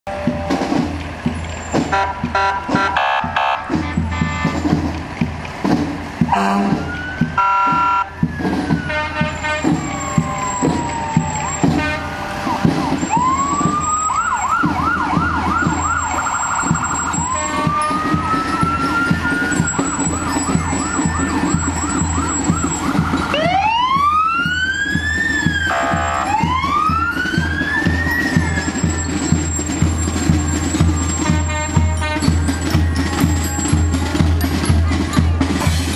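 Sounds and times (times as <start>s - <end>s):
emergency vehicle siren: 0.1s - 4.9s, 6.2s - 35.0s.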